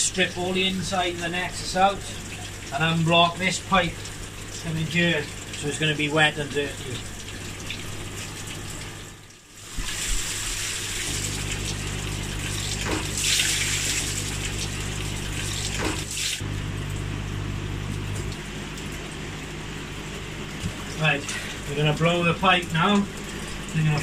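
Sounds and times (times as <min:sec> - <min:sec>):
water gushing from pipe: 0:00.0 - 0:17.2, 0:17.8 - 0:24.0.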